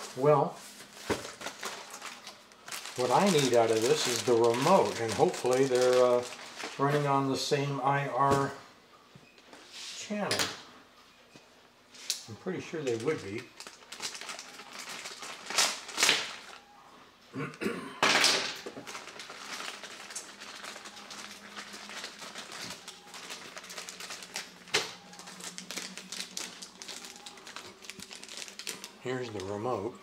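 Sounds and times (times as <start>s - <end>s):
plastic bag crinkling: 0.0s - 7.3s, 12.5s - 16.6s, 18.2s - 29.9s.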